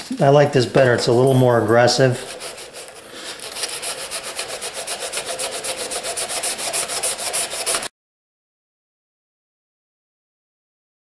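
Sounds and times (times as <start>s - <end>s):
sanding block scratching steel: 0.6s - 7.9s.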